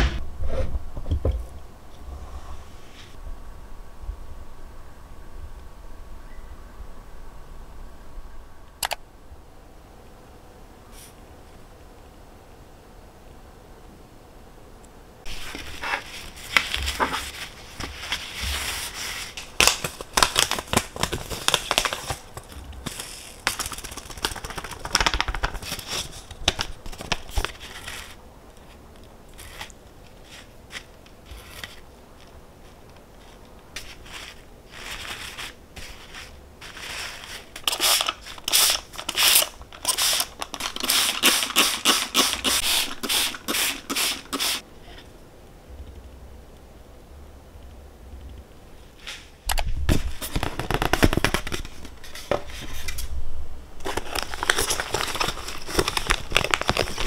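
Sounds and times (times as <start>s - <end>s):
crinkly rustles: 15.3s - 42.5s, 53.8s - 57.0s.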